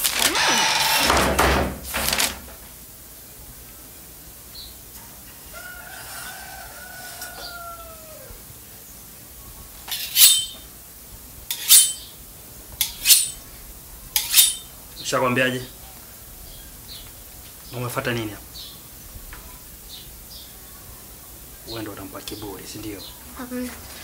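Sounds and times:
machete blade scraping: 0:00.0 - 0:01.4, 0:09.9 - 0:10.6, 0:11.5 - 0:12.1, 0:12.8 - 0:13.4, 0:14.2 - 0:14.7
rooster crowing: 0:05.3 - 0:08.5.

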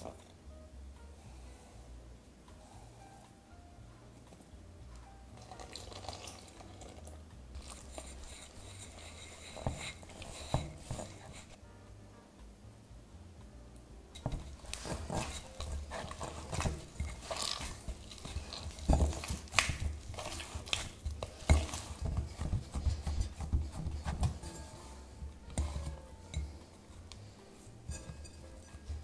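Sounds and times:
dough squishing and slapping: 0:04.1 - 0:11.6, 0:14.2 - 0:29.0.

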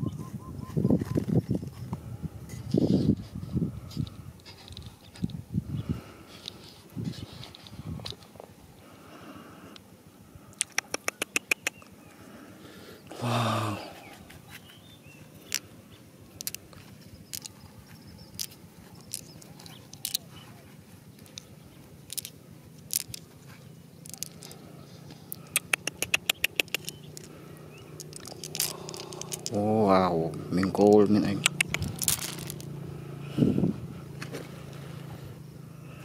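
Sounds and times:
small stones clicking: 0:10.6 - 0:11.8, 0:15.4 - 0:15.7, 0:16.3 - 0:17.6, 0:18.3 - 0:20.4, 0:21.2 - 0:23.3, 0:24.0 - 0:24.6, 0:25.3 - 0:29.8, 0:30.9 - 0:32.7
person humming: 0:13.1 - 0:14.1.

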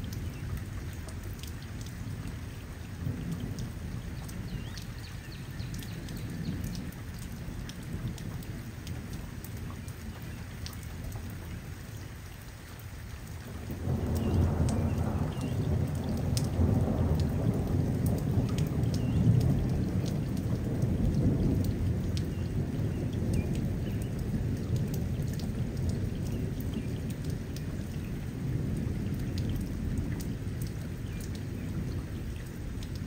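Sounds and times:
steady rain: 0:00.0 - 0:33.0
thunder rumbling: 0:13.7 - 0:30.8.

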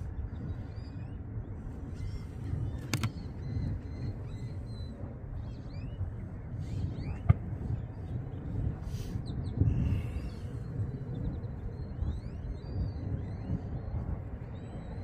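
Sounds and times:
wind rumbling on microphone: 0:00.0 - 0:15.0
sharp click: 0:02.8 - 0:03.2.

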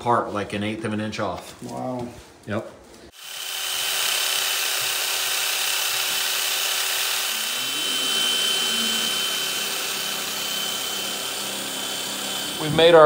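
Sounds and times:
cordless drill grinding metal: 0:03.1 - 0:13.0.

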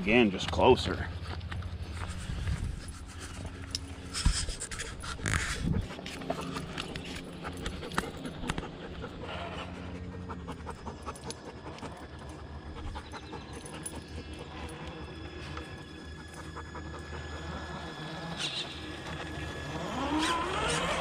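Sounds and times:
dog panting: 0:01.8 - 0:18.4.

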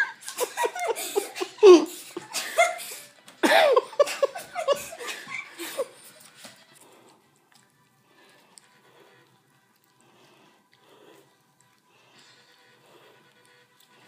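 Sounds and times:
human laughter: 0:00.0 - 0:06.2.

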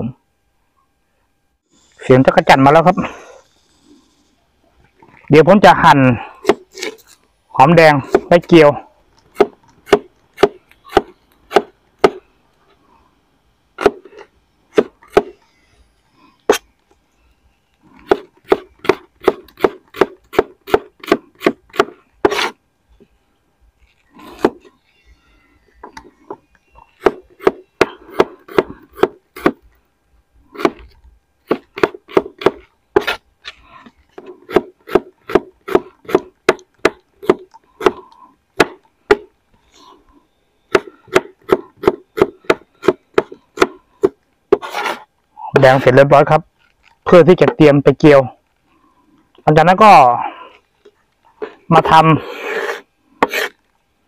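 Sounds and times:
knife chopping on wooden board: 0:18.0 - 0:22.5, 0:27.0 - 0:29.6, 0:30.6 - 0:30.9, 0:31.5 - 0:33.2, 0:34.5 - 0:38.0.

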